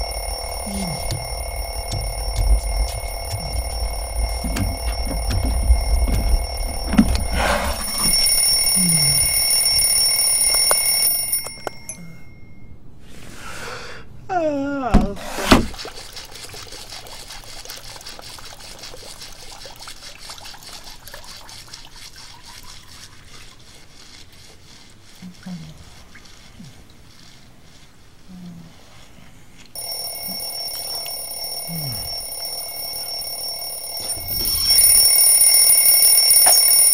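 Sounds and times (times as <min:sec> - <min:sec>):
water trickling: 0:00.0 - 0:10.1, 0:15.6 - 0:27.5
alarm clock ringing: 0:00.0 - 0:12.8, 0:29.8 - 0:36.9.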